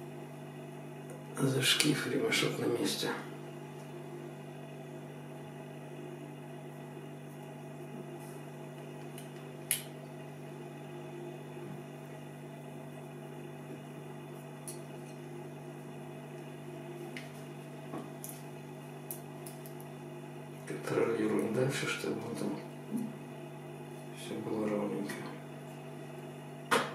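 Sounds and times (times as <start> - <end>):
low electrical hum: 0.0 - 26.9.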